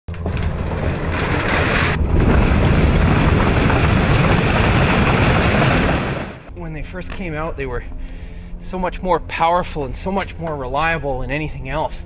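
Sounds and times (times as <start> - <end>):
metal door rolling rattle: 0.1 - 6.5
deep rumble: 0.1 - 10.7.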